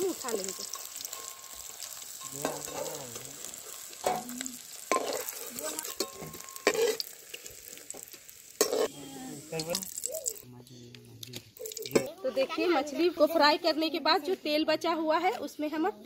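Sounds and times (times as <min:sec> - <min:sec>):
fish sizzling in hot oil: 0:00.0 - 0:10.4, 0:11.6 - 0:12.1
metal spatula scraping: 0:00.3 - 0:09.8
spatula clanking against pan: 0:02.2 - 0:03.0, 0:04.9 - 0:07.0.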